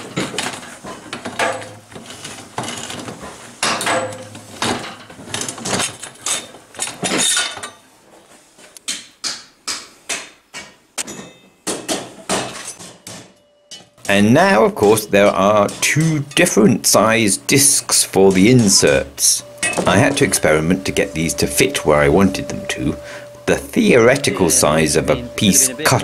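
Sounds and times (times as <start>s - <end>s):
metallic clanks and scrapes: 0.0s - 7.8s.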